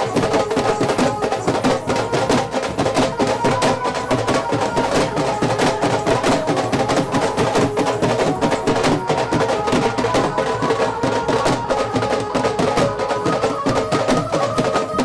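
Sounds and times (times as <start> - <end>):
dhol drums fast rhythm: 0.0 - 15.0.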